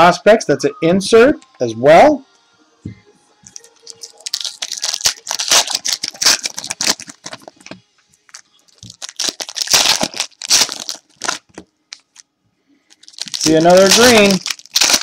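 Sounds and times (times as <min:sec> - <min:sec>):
card pack wrappers tearing and crinkling: 0:03.6 - 0:12.2, 0:12.9 - 0:15.0.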